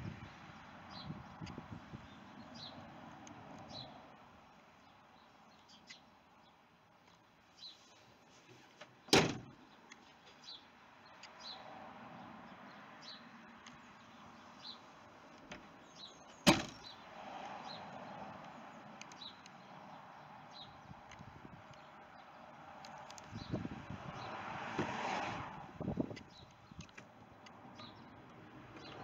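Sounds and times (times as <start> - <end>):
vehicle doors slamming: 9.1 - 9.6, 16.4 - 16.9.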